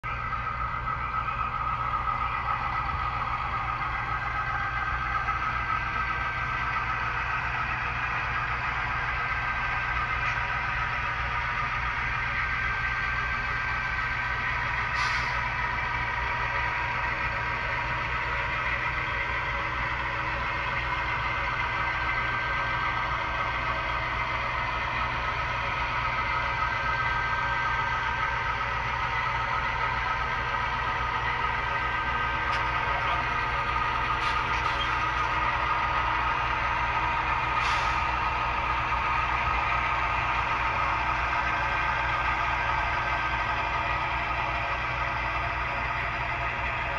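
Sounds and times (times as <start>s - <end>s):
model locomotives droning: 0.0s - 46.9s
short hiss: 14.9s - 15.4s.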